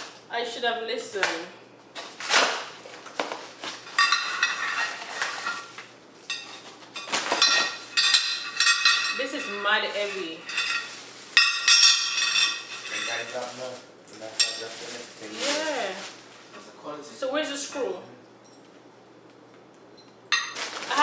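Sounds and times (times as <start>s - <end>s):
plastic wrapping crinkling: 2.0s - 16.8s, 20.3s - 21.0s
iron pot and lid clinking: 7.4s - 9.7s.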